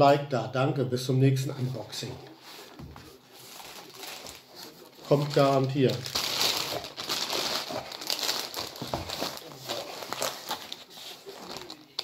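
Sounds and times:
plastic film crinkling: 0:03.3 - 0:12.0.

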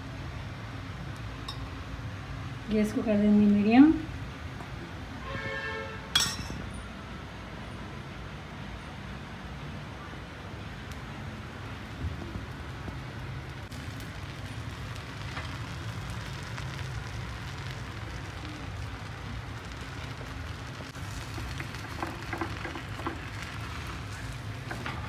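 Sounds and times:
batter sizzling in oil: 0:11.4 - 0:25.0.

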